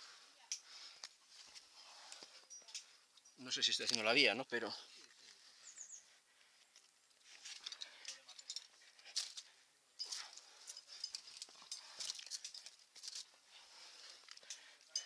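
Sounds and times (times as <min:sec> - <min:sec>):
climbing gear clinking: 0:01.5 - 0:04.2, 0:06.7 - 0:15.0.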